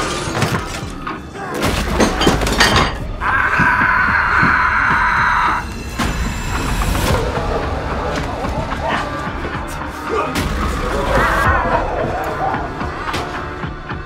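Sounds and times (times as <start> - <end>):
thumps and crashing hits: 0.0 - 3.8.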